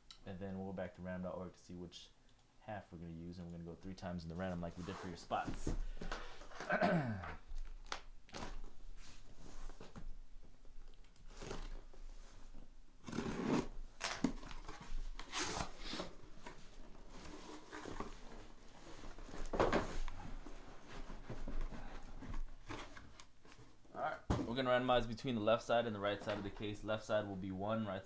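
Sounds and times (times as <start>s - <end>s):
packing tape tearing: 11.0s - 11.8s, 13.0s - 16.1s.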